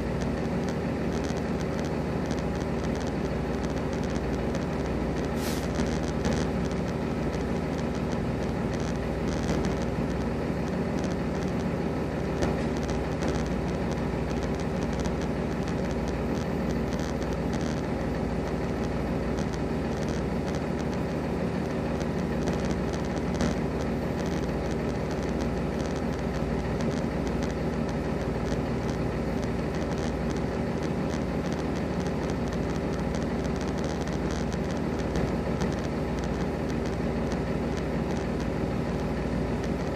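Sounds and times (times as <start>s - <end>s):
faint clicks: 18.8s - 21.1s.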